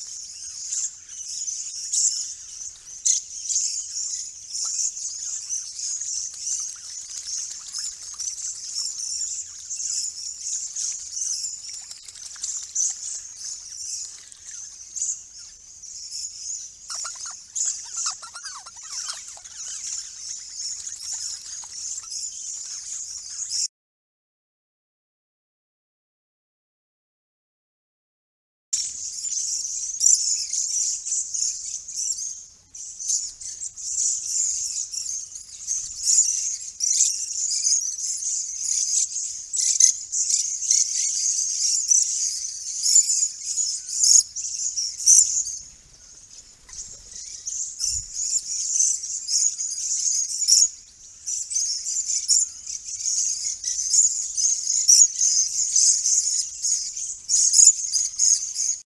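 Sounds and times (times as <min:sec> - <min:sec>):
parrots screeching and chirping: 0:16.9 - 0:23.6.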